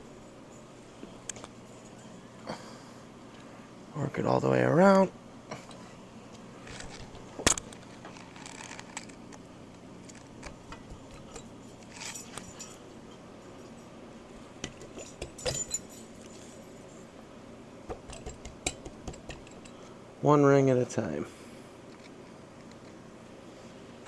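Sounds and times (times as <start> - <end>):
light metallic clicks and clinks: 11.1 - 14.0, 14.7 - 16.8, 18.1 - 19.8.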